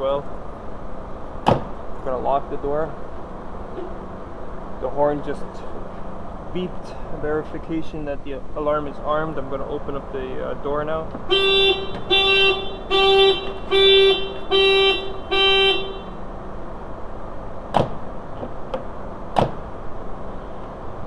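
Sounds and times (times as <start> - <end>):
sharp knocks: 1.4 - 1.8, 17.7 - 19.6
car horn alarm honks: 11.3 - 16.2.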